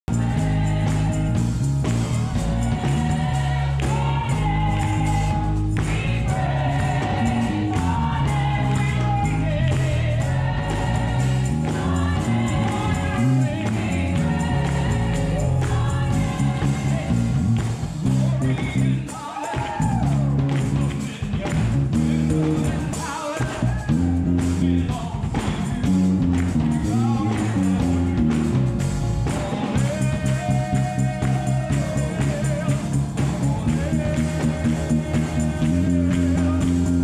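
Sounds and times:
electric bass line: 0.0s - 19.1s, 19.8s - 37.0s
gospel choir singing with band: 0.0s - 37.0s.

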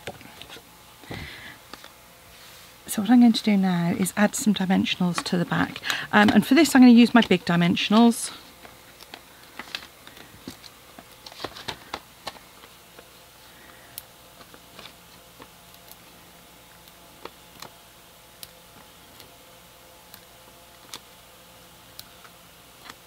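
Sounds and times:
paper and card handling: 4.8s - 13.6s, 14.4s - 16.2s.

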